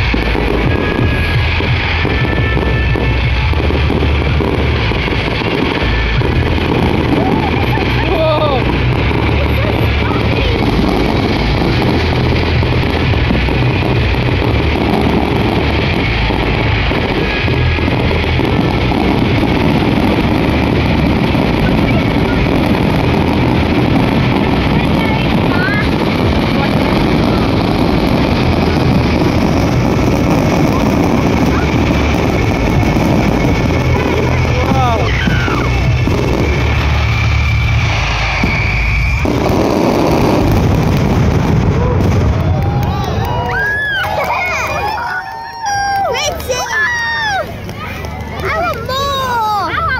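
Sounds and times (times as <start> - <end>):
low rumble: 0.0 - 49.3
fireworks booming and crackling: 0.0 - 49.9
high whistling tone: 31.5 - 40.5.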